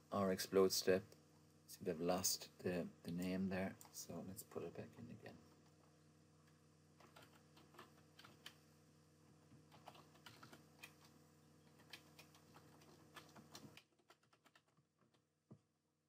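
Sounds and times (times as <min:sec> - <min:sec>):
low steady hum: 0:00.0 - 0:13.8
typing on computer keyboard: 0:07.0 - 0:08.6, 0:09.7 - 0:15.2.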